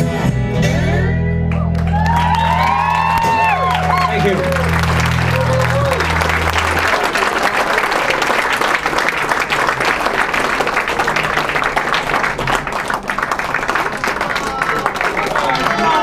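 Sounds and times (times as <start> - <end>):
audience applauding: 1.5 - 16.0
sustained low musical note: 4.0 - 7.8.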